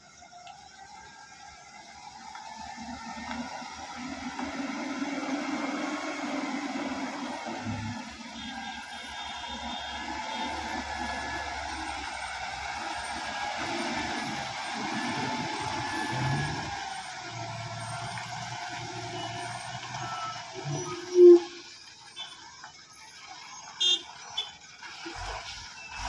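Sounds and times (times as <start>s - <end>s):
truck diesel engine running: 0.0s - 26.0s.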